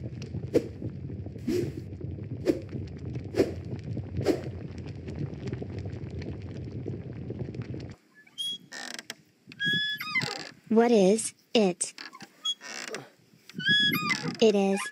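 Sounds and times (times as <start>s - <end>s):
low steady rumble: 0.0s - 8.0s.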